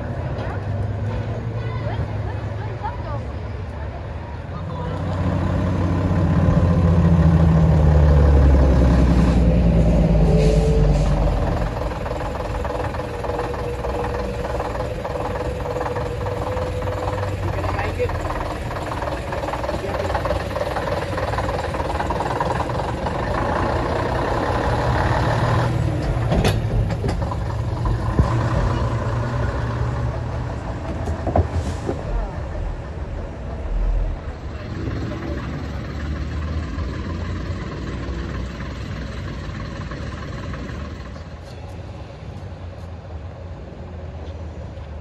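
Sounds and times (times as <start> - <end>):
people talking: 0.0 - 5.2, 15.7 - 24.2, 31.8 - 36.0
heavy vehicle engine running: 0.0 - 45.0.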